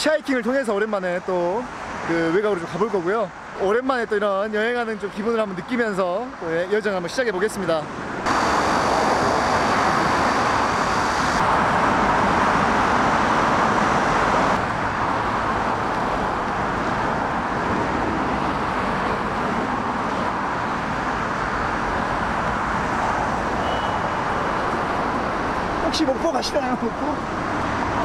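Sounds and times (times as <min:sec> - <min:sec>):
cars speeding past: 0:08.0 - 0:28.0.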